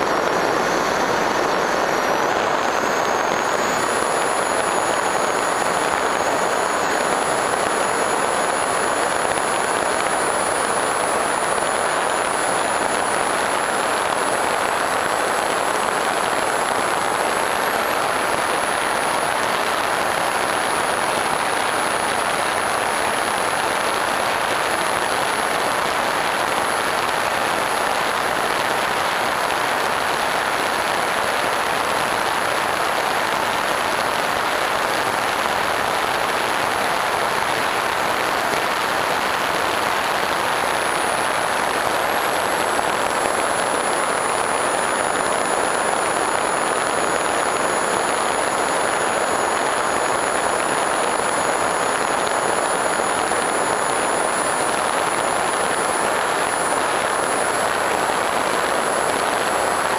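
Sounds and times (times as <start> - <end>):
electric motor and propeller whine: 0.0 - 34.1.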